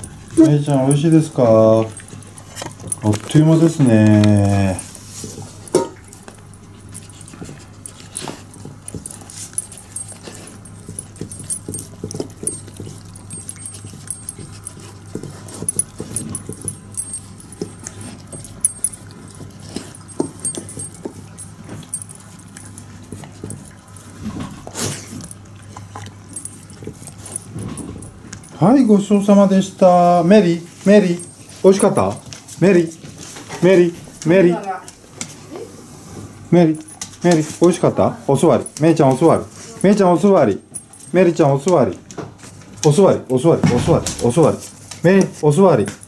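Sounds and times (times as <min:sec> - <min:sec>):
dog chewing and licking: 0:00.0 - 0:35.4, 0:36.7 - 0:46.0
low steady hum: 0:00.0 - 0:46.0
metal bowl clattering: 0:05.2 - 0:06.1.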